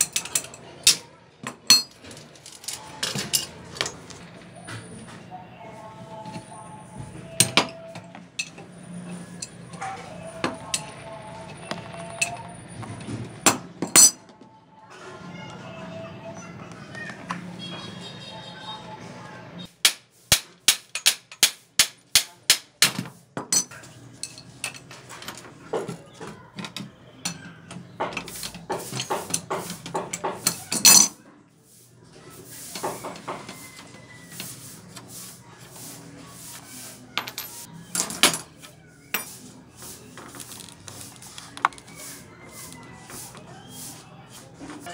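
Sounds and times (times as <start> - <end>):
hammer striking steel frame: 19.8 - 23.0.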